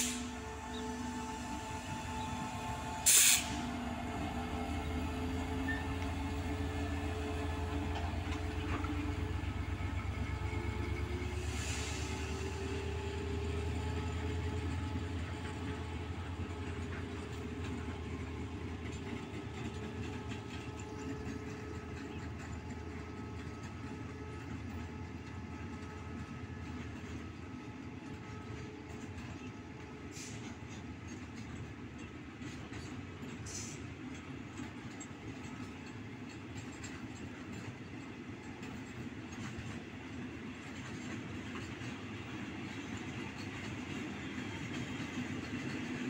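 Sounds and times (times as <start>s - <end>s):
locomotive engine drone: 0.0s - 46.0s
brief hiss: 3.0s - 3.7s.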